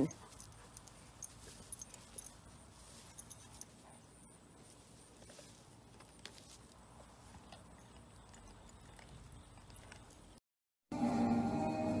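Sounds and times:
dog gnawing wood cracks: 7.4 - 10.4.

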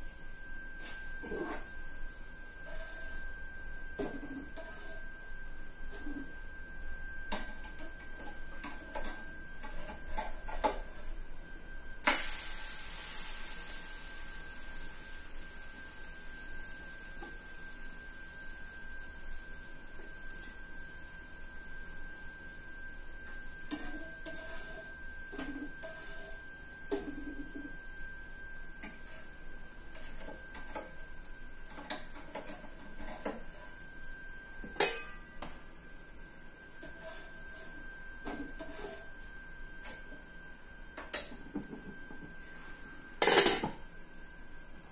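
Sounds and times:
oil sizzling in pan: 12.0 - 33.8
utensils clinking on cookware: 34.7 - 35.2.

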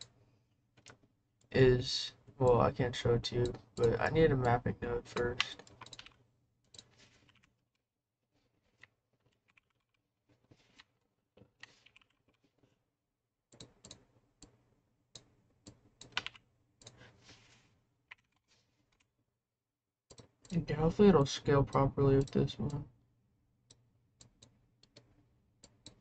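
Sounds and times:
faint keyboard typing: 2.2 - 7.6, 8.6 - 10.0, 10.6 - 12.7, 13.5 - 19.1, 23.7 - 26.0.

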